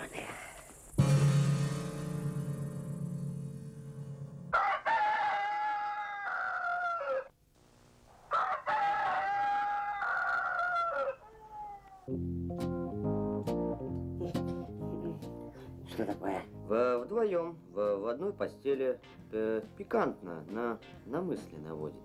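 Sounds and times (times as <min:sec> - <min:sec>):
rooster crowing: 0:04.5 - 0:07.3, 0:08.3 - 0:12.1.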